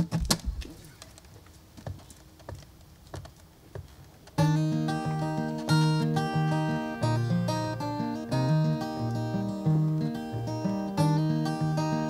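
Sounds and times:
strummed acoustic guitar: 4.4 - 12.0.

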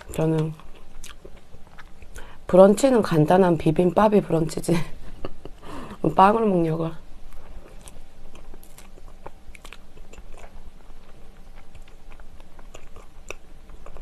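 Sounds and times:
close chewing: 0.0 - 2.3, 7.3 - 14.0.

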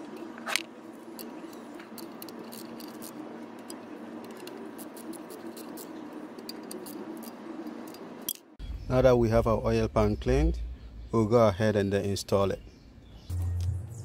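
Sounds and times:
low hum: 13.0 - 14.0.

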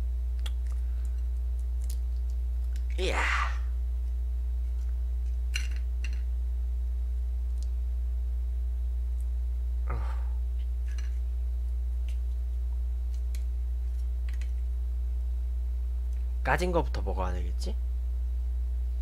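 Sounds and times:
low electrical hum: 0.0 - 19.0
eggshell crackling: 0.3 - 3.6.

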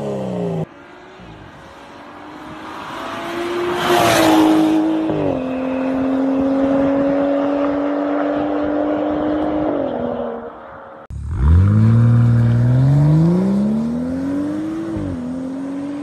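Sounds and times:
car with loud exhaust accelerating: 2.2 - 16.0.

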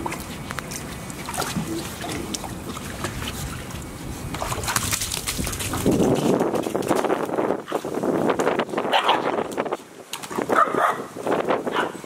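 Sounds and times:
shallow water splashing: 0.0 - 7.2.

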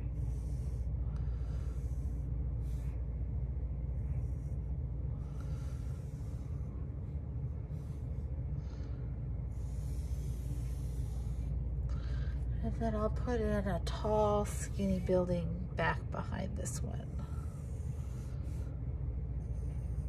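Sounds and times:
pencil scratching on paper: 0.0 - 3.1, 3.9 - 4.8, 9.5 - 11.6, 17.0 - 18.7
steady low hum: 0.0 - 20.0.

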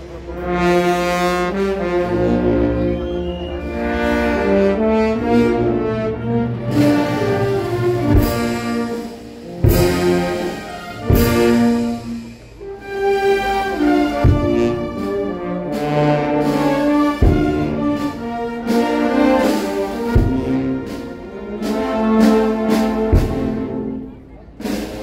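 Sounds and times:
brass band playing a funeral march: 0.0 - 25.0
heavy percussion strikes: 4.4 - 12.9, 13.6 - 25.0.

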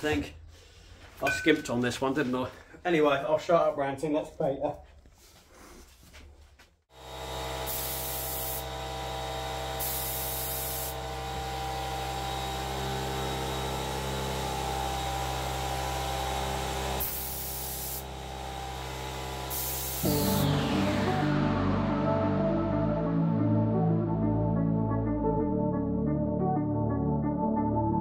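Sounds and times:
air compressor humming: 6.9 - 20.7
spray gun hissing: 7.7 - 8.7, 9.8 - 11.0, 17.0 - 18.1, 19.4 - 20.6.

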